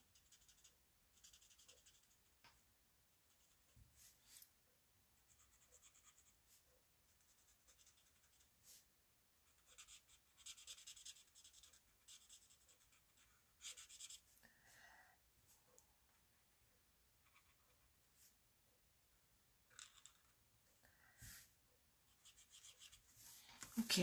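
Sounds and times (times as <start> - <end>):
marker scratching on paper: 0.0 - 2.2, 5.3 - 6.6, 7.2 - 8.8, 9.5 - 14.3, 22.1 - 23.8.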